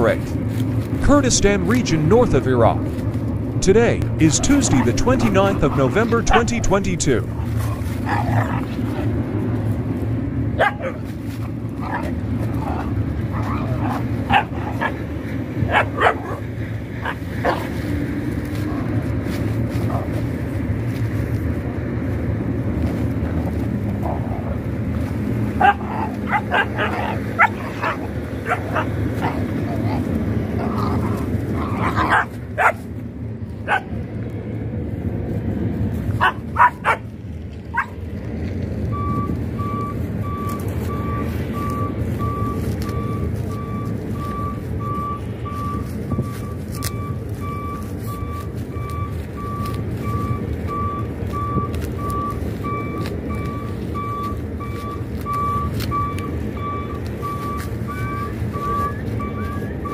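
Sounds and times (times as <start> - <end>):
low engine rumble: 0.0 - 59.9
puppies yipping and whining: 7.4 - 9.2, 23.9 - 32.9, 36.1 - 37.1, 39.0 - 59.9
reversing alarm beeping: 38.9 - 59.9.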